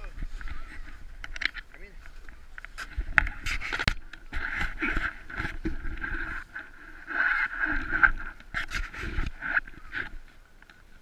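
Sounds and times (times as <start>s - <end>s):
sled scraping over snow: 2.1s - 10.4s.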